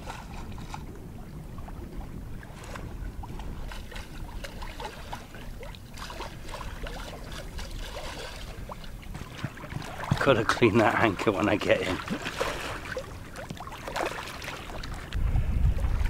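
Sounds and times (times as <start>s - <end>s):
low steady rumble: 0.0s - 13.7s, 14.4s - 16.0s
water splashing along boat hull: 0.0s - 16.0s.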